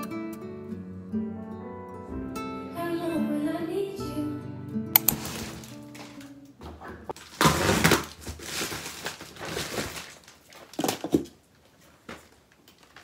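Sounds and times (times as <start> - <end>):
packaging rustling and crinkling: 5.1 - 13.0.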